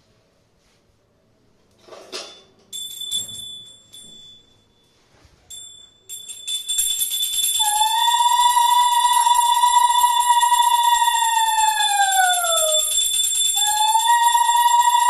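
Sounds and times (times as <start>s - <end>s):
small brass hand bell ringing: 2.7s - 4.9s, 5.5s - 7.7s, 11.9s - 14.4s.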